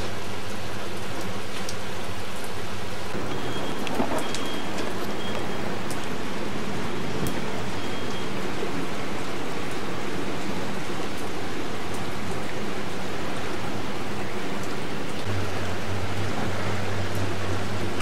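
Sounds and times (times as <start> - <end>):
rain falling on water: 0.0 - 18.0.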